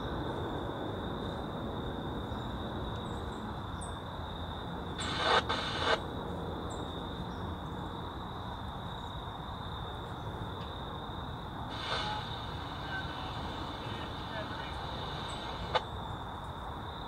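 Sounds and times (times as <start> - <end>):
short bursts of hiss: 5.0 - 6.0, 11.7 - 15.8
distant jet airliner rumble: 9.9 - 16.9.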